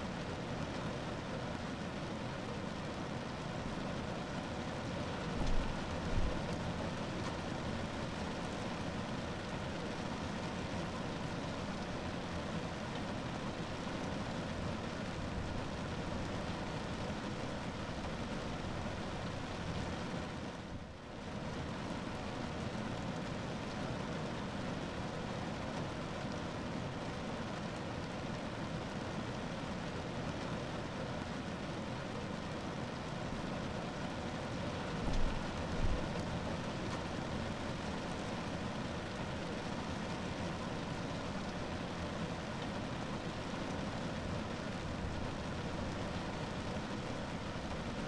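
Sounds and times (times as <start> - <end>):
rain on a car roof: 0.0 - 48.0.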